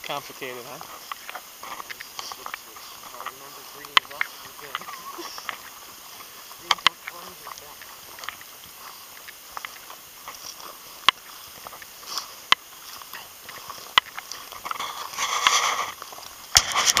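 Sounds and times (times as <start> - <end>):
footsteps crunching through stubble: 0.0 - 17.0
loud rustle: 0.4 - 17.0
sharp clicks: 1.0 - 5.7, 6.6 - 8.5, 11.0 - 15.6.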